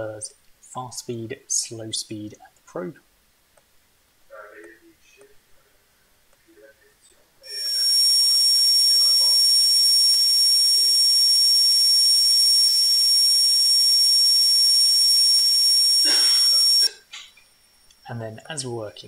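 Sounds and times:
dental drill whine: 0:07.5 - 0:16.9.

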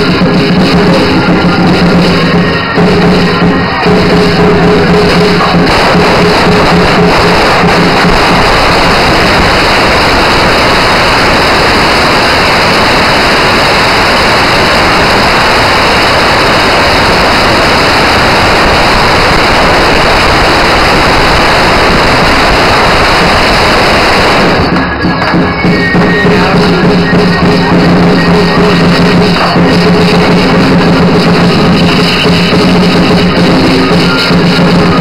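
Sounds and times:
firecrackers crackling: 0:00.0 - 0:35.0.

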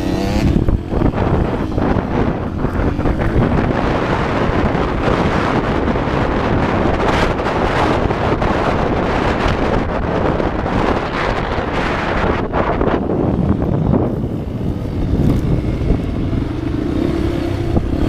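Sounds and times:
dirt bike engine running: 0:00.0 - 0:18.0
wind buffeting microphone: 0:00.0 - 0:18.0.

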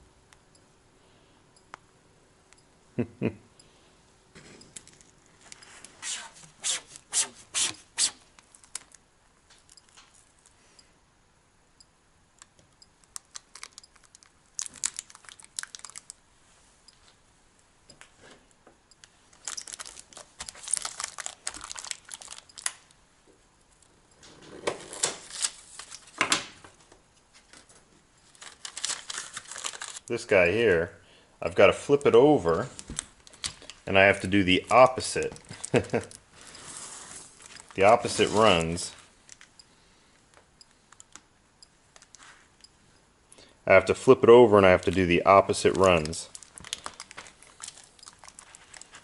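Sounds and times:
tape tearing and crinkling: 0:06.0 - 0:10.3, 0:13.1 - 0:16.1, 0:19.3 - 0:22.9, 0:24.7 - 0:26.2, 0:27.5 - 0:30.1, 0:45.7 - 0:49.0.

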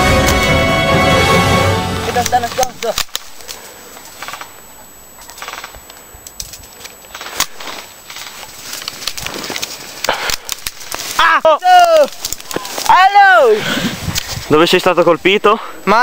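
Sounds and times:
steady outdoor hiss: 0:00.0 - 0:16.0
loud crack: 0:02.0 - 0:04.6, 0:07.1 - 0:13.0
sharp clicks and pops: 0:02.2 - 0:04.6, 0:05.2 - 0:13.0.

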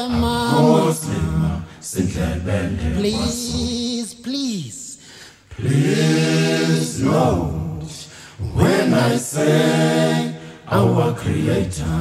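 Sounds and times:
person singing wordless notes: 0:00.0 - 0:01.3.

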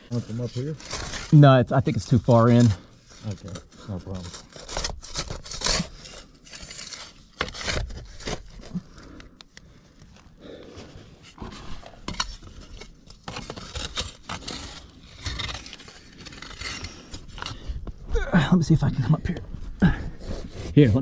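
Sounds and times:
digging tool scraping dirt: 0:00.0 - 0:08.8, 0:10.6 - 0:17.8.

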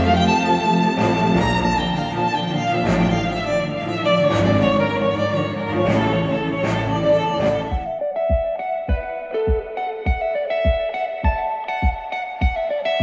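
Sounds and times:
violin and bowed strings music: 0:00.0 - 0:08.9.

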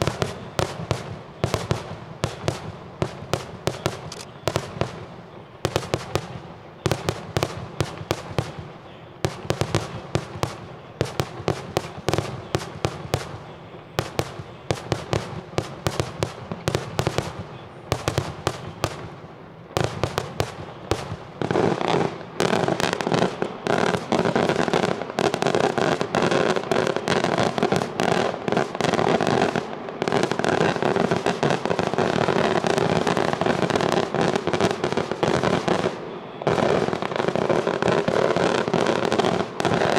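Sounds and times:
fireworks bangs and crackle: 0:00.0 - 0:39.9.

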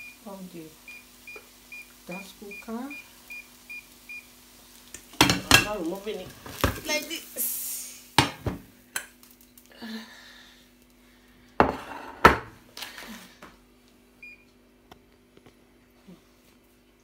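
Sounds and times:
faint steady hum: 0:07.0 - 0:17.0.

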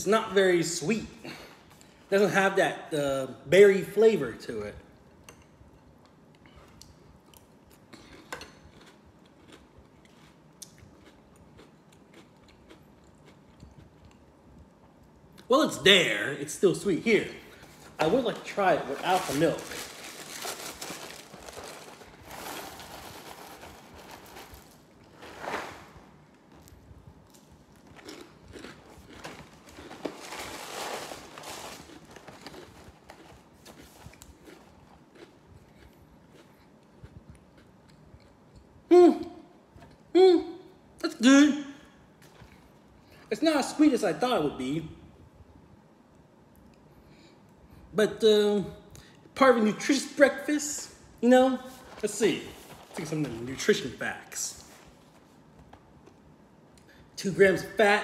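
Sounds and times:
chewing crunchy cereal: 0:06.4 - 0:14.4, 0:26.6 - 0:38.7.

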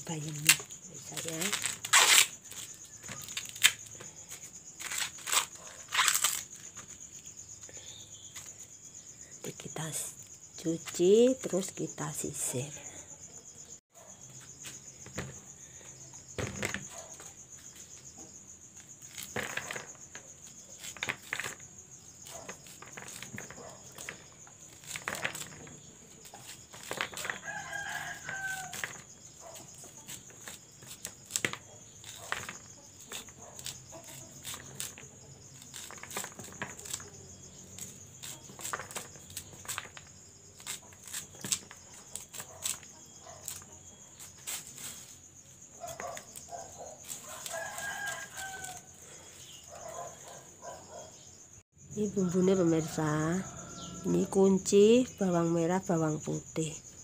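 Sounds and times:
knife scraping corn cob: 0:00.2 - 0:06.9, 0:19.0 - 0:45.2, 0:45.8 - 0:48.9.

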